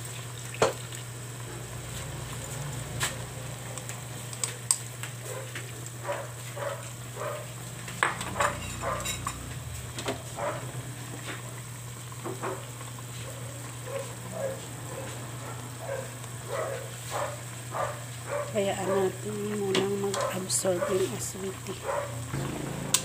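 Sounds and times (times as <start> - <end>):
sauce sizzling and bubbling: 0.0 - 23.0
steady low hum: 6.6 - 12.1.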